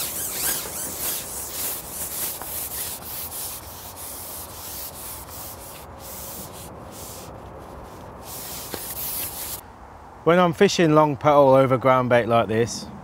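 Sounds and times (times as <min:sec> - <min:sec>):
fishing pole sliding and scraping: 0:00.0 - 0:09.6.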